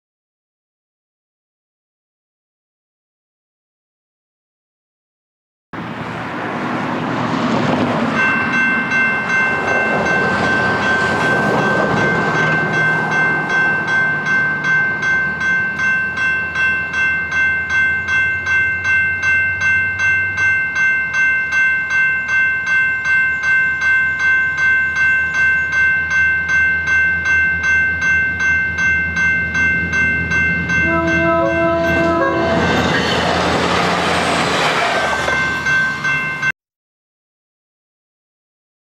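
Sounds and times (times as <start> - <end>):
level crossing warning bell: 8.1 - 36.6
train horn: 30.8 - 32.9.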